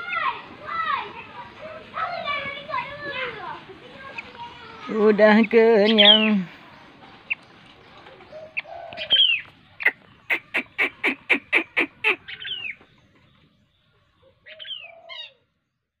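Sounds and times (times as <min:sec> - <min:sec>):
nestling down-slurred calls: 0:01.4 - 0:13.4.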